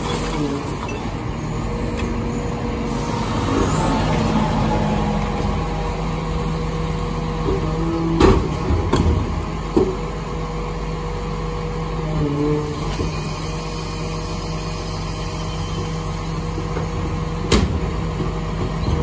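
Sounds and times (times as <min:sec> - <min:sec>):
hydraulic packer sweeping: 0:00.0 - 0:10.6
garbage truck running: 0:00.0 - 0:19.0.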